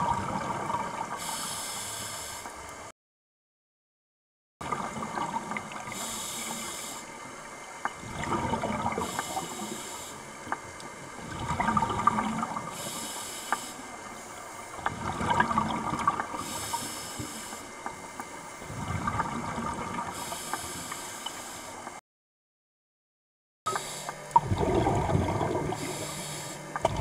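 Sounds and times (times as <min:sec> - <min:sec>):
exhaled air bubbling: 0:00.0 - 0:01.8, 0:04.6 - 0:21.6, 0:23.7 - 0:27.0
regulator inhale hiss: 0:01.2 - 0:02.6, 0:05.9 - 0:07.2, 0:09.0 - 0:10.3, 0:12.7 - 0:14.8, 0:16.3 - 0:18.4, 0:20.1 - 0:22.0, 0:23.7 - 0:24.2, 0:25.7 - 0:26.7.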